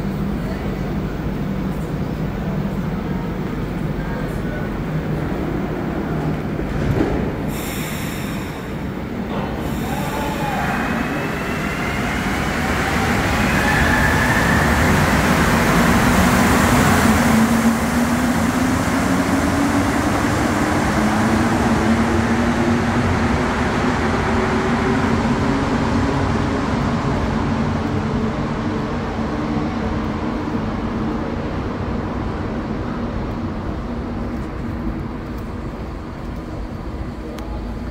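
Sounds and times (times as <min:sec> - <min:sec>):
train running in tunnel: 0:00.0 - 0:37.9.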